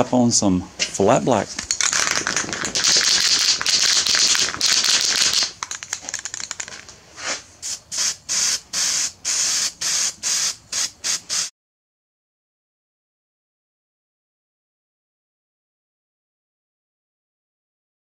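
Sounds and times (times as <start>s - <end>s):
spray paint can hissing: 1.7s - 6.9s, 7.6s - 11.5s.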